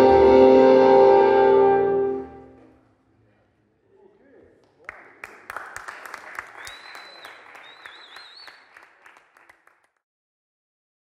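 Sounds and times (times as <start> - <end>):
applause and cheering whistles: 4.8 - 10.0.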